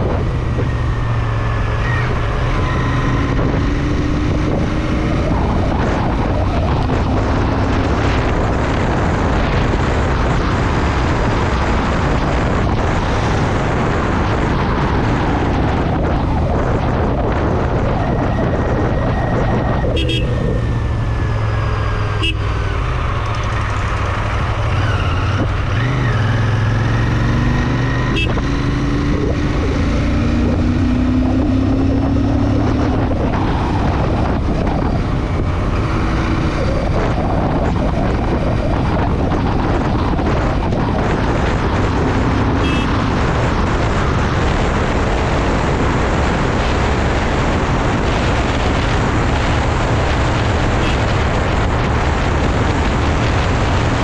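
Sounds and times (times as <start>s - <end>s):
wind rush on microphone: 0.0s - 54.0s.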